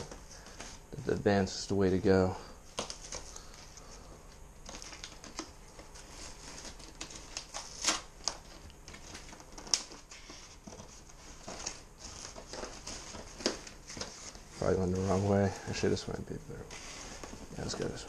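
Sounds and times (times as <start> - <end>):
crinkling tape and cardboard: 0.0 - 18.0
scissors cutting packing tape: 6.7 - 8.4.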